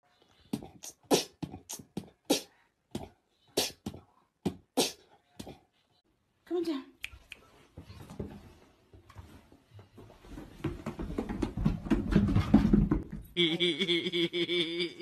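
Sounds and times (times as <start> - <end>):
dog sliding down carpeted stairs: 7.7 - 13.3.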